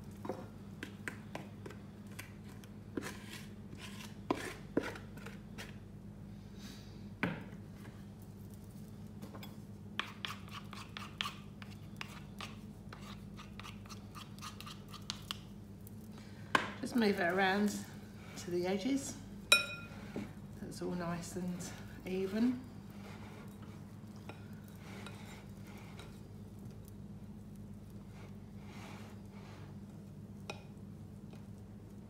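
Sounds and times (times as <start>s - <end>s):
spoons scraping mixing bowls: 1.0s - 5.8s, 10.0s - 15.4s, 21.0s - 26.3s.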